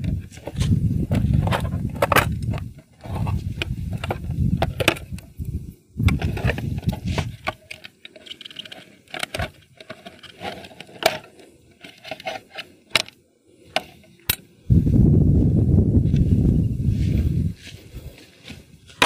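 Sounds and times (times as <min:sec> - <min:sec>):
plastic clicks and scraping: 0:00.0 - 0:14.5.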